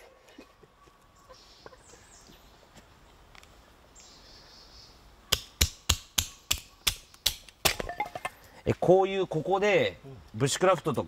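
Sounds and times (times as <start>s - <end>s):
sharp wooden knocks splitting firewood: 5.3s - 7.9s.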